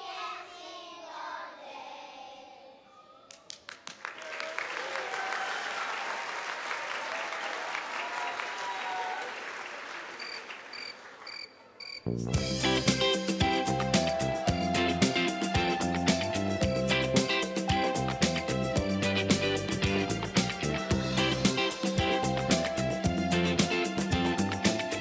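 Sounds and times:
children's choir singing: 0.0s - 3.1s
audience applause: 3.5s - 11.4s
instrumental music: 12.2s - 25.0s.

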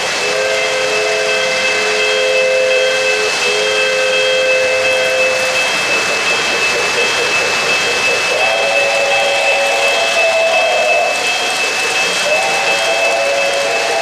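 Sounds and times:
model trains rolling on track: 0.0s - 14.0s
model train whistle blasts: 0.1s - 5.8s, 12.2s - 14.0s.

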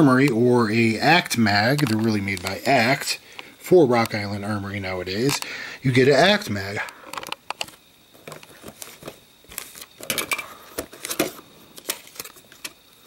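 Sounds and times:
plastic packaging crinkling: 1.5s - 2.7s, 7.2s - 12.8s.

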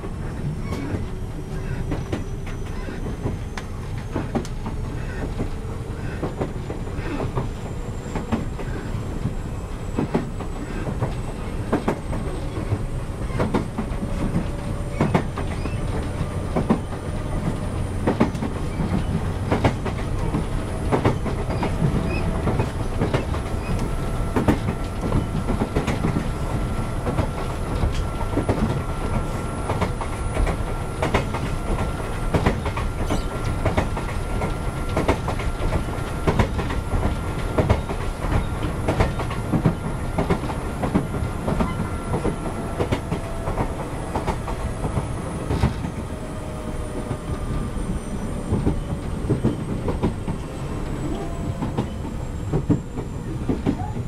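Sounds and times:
rail-joint clacks: 0.0s - 54.0s
train wheels rumbling on rail: 0.0s - 54.0s.

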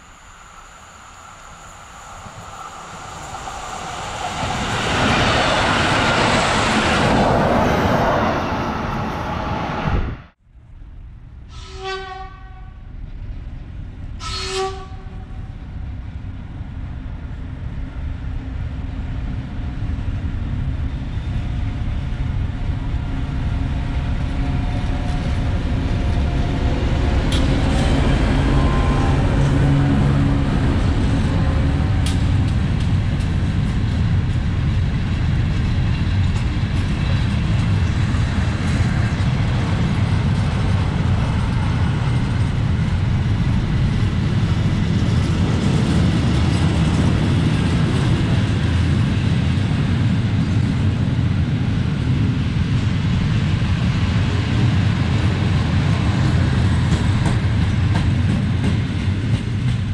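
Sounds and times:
locomotive horn blast: 11.5s - 12.8s, 14.2s - 15.4s, 27.4s - 32.0s
locomotive engine rumble: 15.0s - 59.9s.

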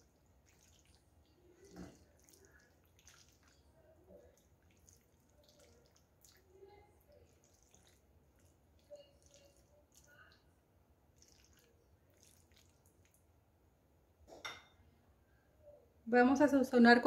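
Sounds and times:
spatula stirring creamy pasta: 0.0s - 13.3s.

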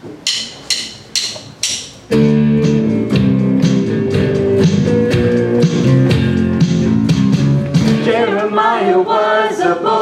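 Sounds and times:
guitar strumming chords: 2.0s - 8.6s.

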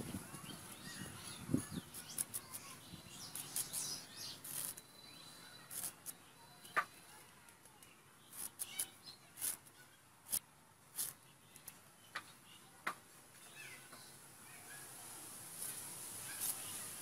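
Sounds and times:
radish skin scraping on blade: 11.0s - 11.2s.

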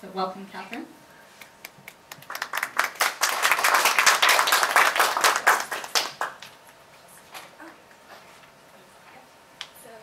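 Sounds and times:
people applauding: 1.8s - 6.6s.

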